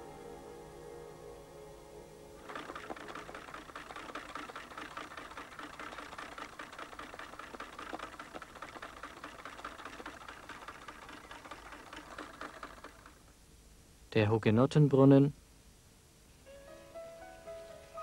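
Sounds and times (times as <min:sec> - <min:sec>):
sewing machines clattering: 0:02.4 - 0:13.2.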